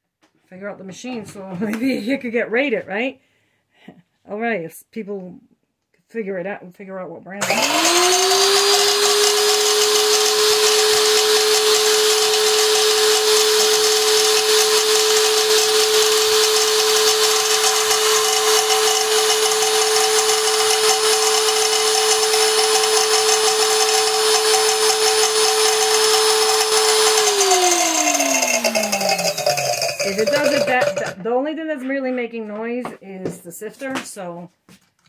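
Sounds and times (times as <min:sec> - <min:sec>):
grinding mill whining: 0:07.4 - 0:31.2.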